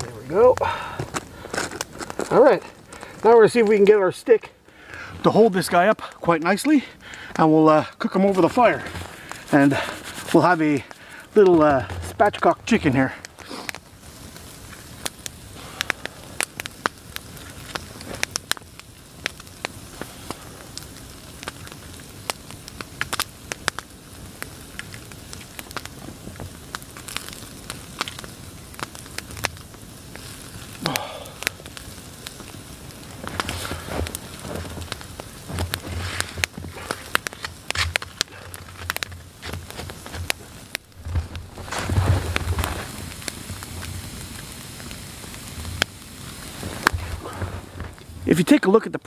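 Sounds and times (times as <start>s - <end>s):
campfire crackling and popping: 0.0s - 49.0s
rustling: 8.2s - 15.1s, 32.4s - 43.9s, 46.4s - 48.3s.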